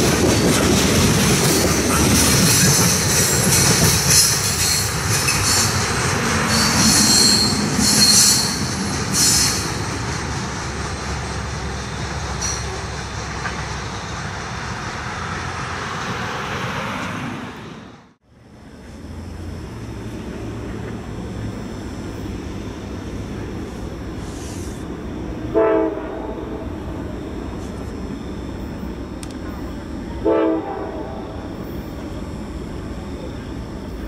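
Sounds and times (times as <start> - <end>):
train wheels squealing on rails: 0.0 - 15.8
train rolling rumble: 0.0 - 34.0.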